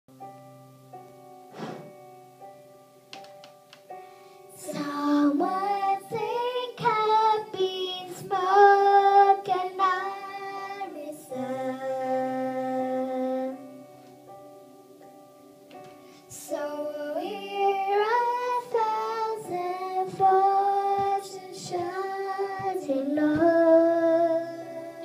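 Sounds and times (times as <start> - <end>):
karaoke backing music: 0.1 - 25.0
girl singing into microphone: 4.5 - 14.0, 16.0 - 25.0.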